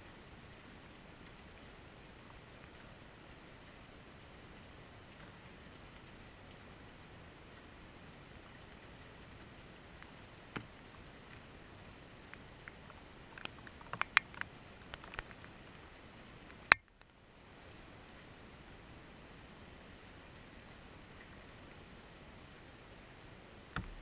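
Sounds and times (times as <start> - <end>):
light rain hiss: 0.0 - 24.0
drip ticks: 12.3 - 15.8, 16.7 - 17.2, 20.7 - 21.6.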